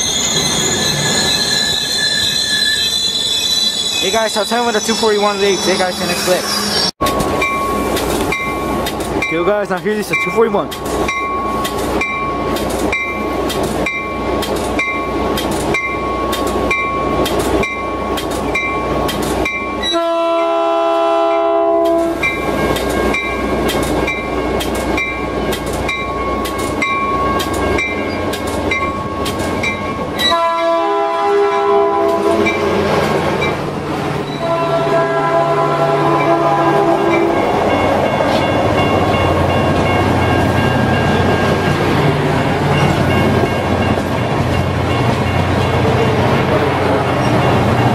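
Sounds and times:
crossing warning bell ringing: 0.0s - 32.8s, 33.4s - 47.9s
train rumble: 3.9s - 47.9s
train horn chord: 19.9s - 22.2s, 30.3s - 32.5s, 34.4s - 37.4s.

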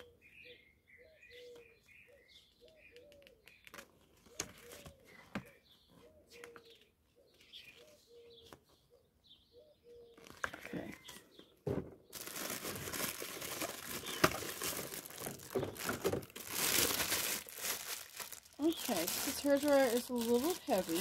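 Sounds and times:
faint birds calling: 0.0s - 21.0s.

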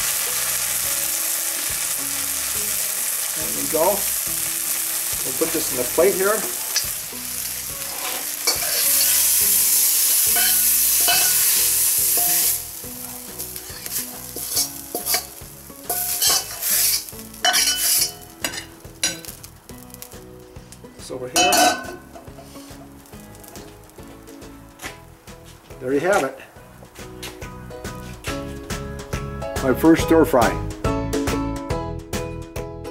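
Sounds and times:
stir-fry sizzling in a wok: 0.0s - 25.8s
spatula scraping metal wok: 5.4s - 19.4s, 21.9s - 23.6s.

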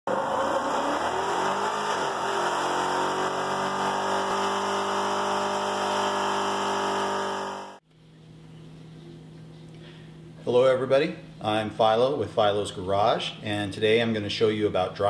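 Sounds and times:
truck engine revving hard: 0.1s - 7.8s.

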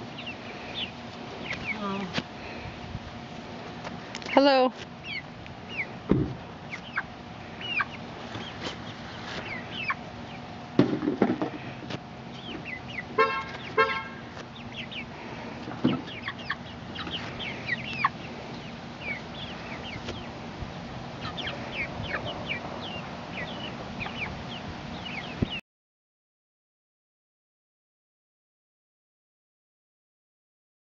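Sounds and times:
chicks cheeping: 0.0s - 3.0s, 3.6s - 10.8s, 11.6s - 25.6s
chickens clucking: 0.0s - 25.6s
honk-like call: 13.2s - 14.3s.

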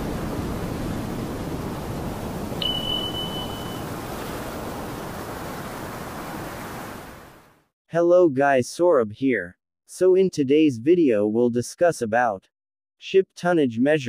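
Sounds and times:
high electronic beep: 2.6s - 3.9s.

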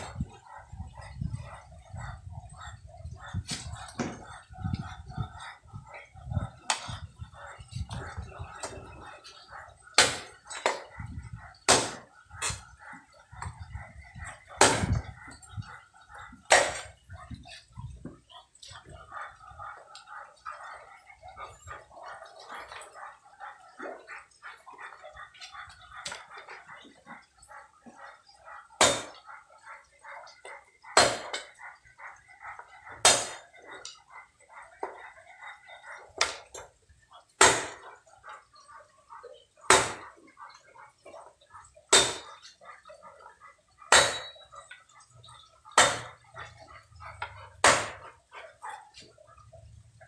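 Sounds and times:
cleaver chopping wood sticks: 11.7s - 12.6s, 14.6s - 15.0s, 16.5s - 16.9s, 31.0s - 31.3s, 37.4s - 37.8s, 39.7s - 40.0s, 42.0s - 42.3s, 43.9s - 44.3s, 45.8s - 46.1s, 47.6s - 48.0s.

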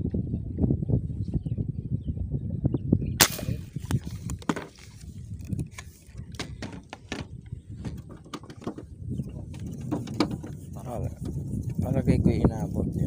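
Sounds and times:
wind rumble on microphone: 0.0s - 13.0s
knocks and clatter on bamboo: 3.9s - 11.4s.

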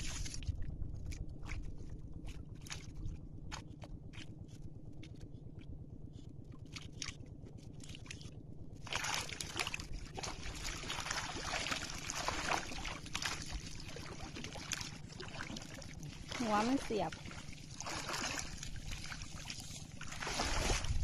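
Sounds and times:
low steady hum: 0.0s - 21.0s
wading through water: 0.0s - 21.0s
water dripping and splashing: 7.8s - 20.9s.

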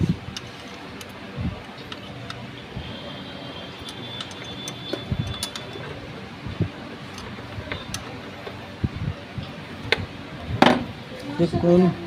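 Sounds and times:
steady background hum: 0.0s - 12.0s
hand tools clicking and knocking: 3.7s - 6.0s, 7.0s - 8.6s.

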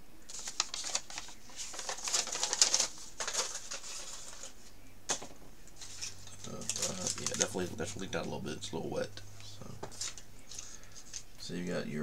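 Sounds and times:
plastic packaging crinkling: 0.3s - 8.1s.

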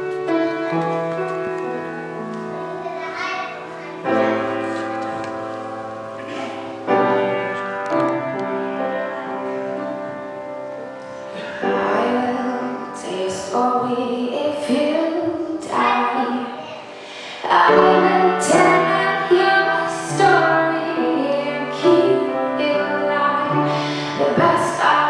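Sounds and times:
woman singing into microphone: 11.8s - 25.0s.

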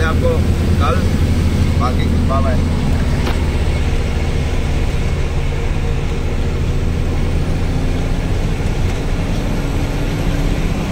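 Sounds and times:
road noise: 0.0s - 10.9s
truck engine droning: 0.0s - 10.9s.

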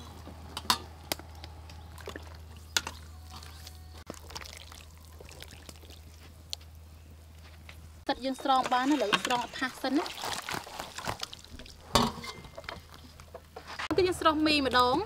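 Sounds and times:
liquid pouring and splashing: 4.1s - 6.6s, 9.7s - 11.9s.

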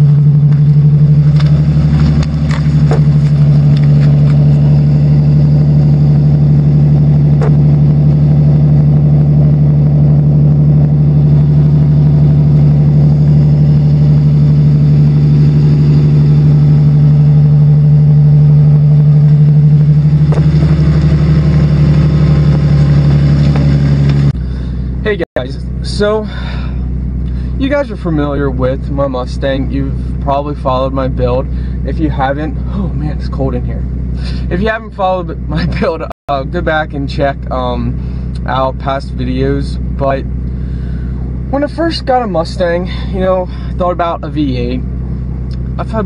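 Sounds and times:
car exhaust idling: 0.0s - 46.0s.

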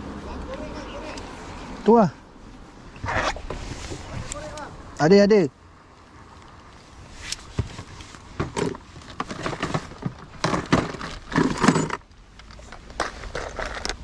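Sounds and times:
fishing tackle clicking and scraping: 6.4s - 14.0s.

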